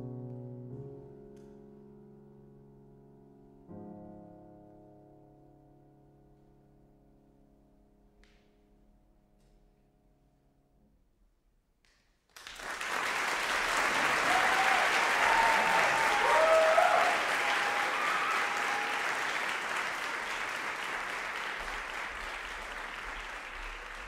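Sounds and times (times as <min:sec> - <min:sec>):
audience applause: 0:12.4 - 0:24.0.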